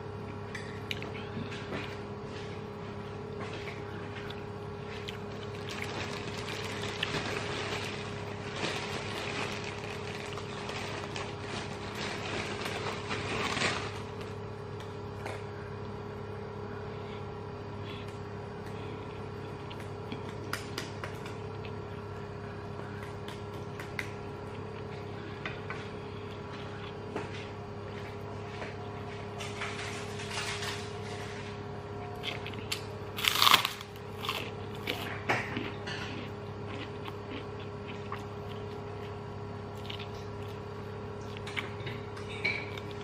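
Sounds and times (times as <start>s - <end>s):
steady low hum: 0.0s - 43.0s
chewing with crunchy clicks: 0.6s - 1.2s, 3.4s - 12.2s, 19.4s - 21.9s, 32.2s - 43.0s.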